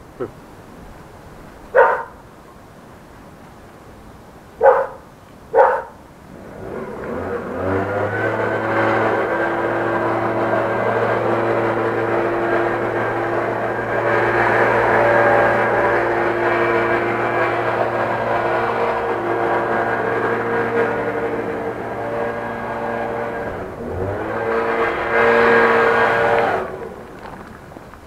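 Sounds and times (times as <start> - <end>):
dog barking: 1.7 - 2.2, 4.6 - 6.0
motor humming: 5.6 - 28.0.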